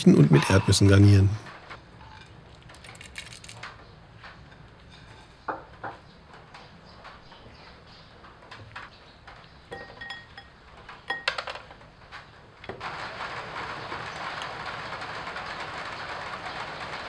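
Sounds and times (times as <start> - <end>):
utensils clinking against ceramic bowl: 9.7 - 11.5.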